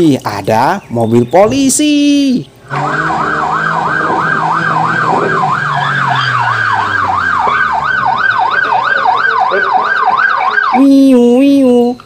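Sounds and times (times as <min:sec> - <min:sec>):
police siren yelping: 0:02.6 - 0:11.3.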